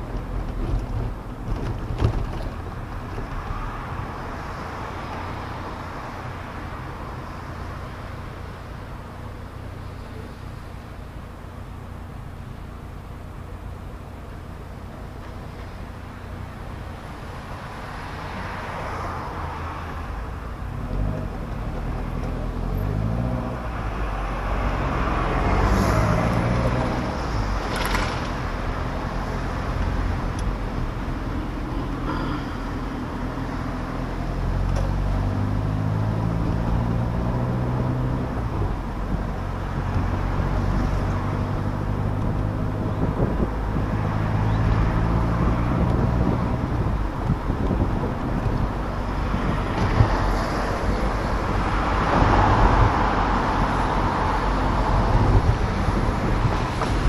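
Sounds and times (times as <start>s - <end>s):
car engine accelerating: 20.6s - 57.0s
wind noise: 36.2s - 57.0s.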